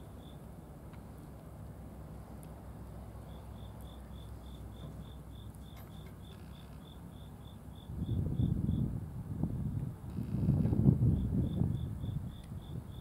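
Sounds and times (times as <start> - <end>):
cricket chirping: 0.0 - 0.5, 3.1 - 8.9, 10.1 - 13.0.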